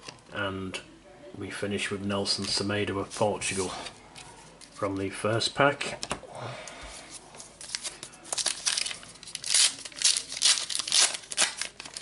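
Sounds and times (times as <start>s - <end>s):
plastic wrapper crinkling: 7.4s - 12.0s.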